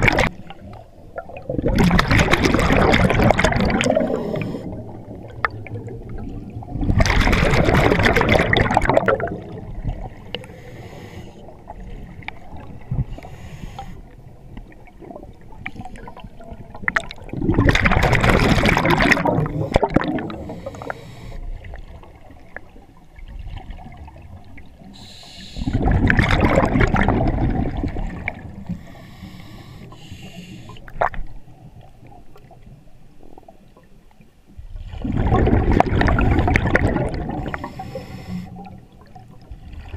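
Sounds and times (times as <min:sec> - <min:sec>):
bubbling exhalations: 0:01.2 - 0:09.7, 0:17.3 - 0:20.8, 0:25.6 - 0:28.2, 0:34.9 - 0:37.9
diver breathing through regulator: 0:03.9 - 0:05.0, 0:10.4 - 0:12.2, 0:13.1 - 0:14.1, 0:19.4 - 0:21.5, 0:25.0 - 0:25.9, 0:28.6 - 0:30.9, 0:37.3 - 0:38.7.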